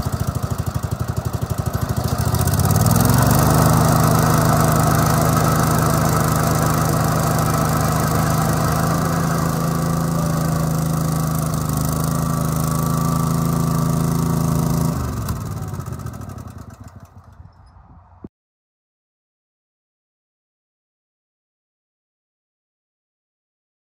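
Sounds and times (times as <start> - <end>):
riding mower engine running: 0.0 - 17.6.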